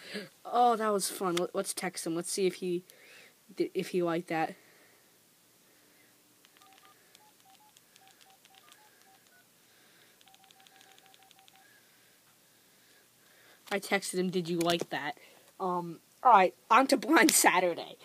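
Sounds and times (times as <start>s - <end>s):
light key clicks: 6.4s - 9.4s
phone keypad beeps: 6.4s - 9.5s, 10.2s - 11.7s.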